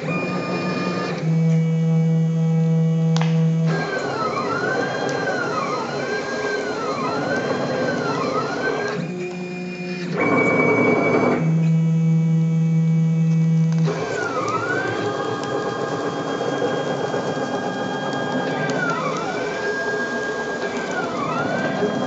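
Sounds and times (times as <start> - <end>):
stepper motors whining: 0.0 - 22.0.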